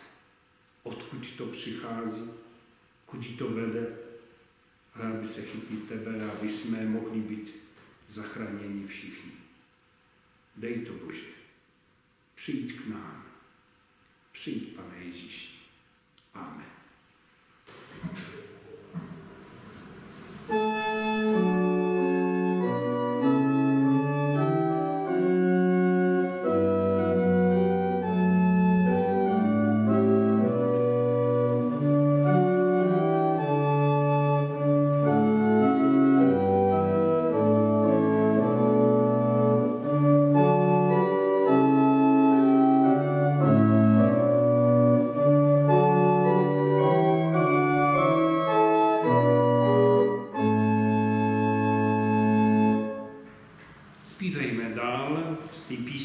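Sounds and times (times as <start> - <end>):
church organ playing chords: 18.5 - 53.2.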